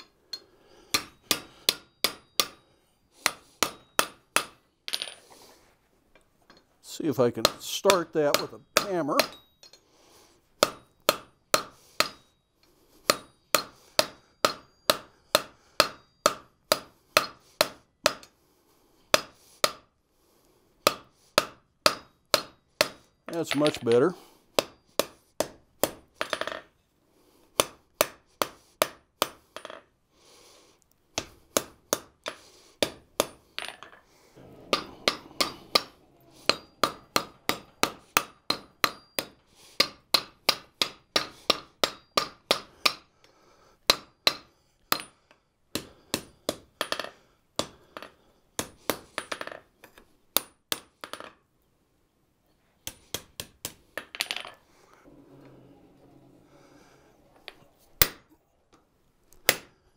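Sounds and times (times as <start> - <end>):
hammer striking steel on anvil: 0.0 - 5.1, 7.4 - 9.8, 10.6 - 12.4, 13.1 - 18.3, 20.8 - 26.6, 34.4 - 43.0
anvil ringing: 34.4 - 40.6, 55.1 - 58.2.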